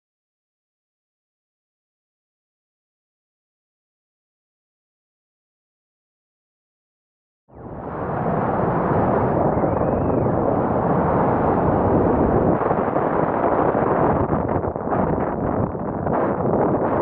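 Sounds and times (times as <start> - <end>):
freefall wind rushing: 7.6 - 17.0.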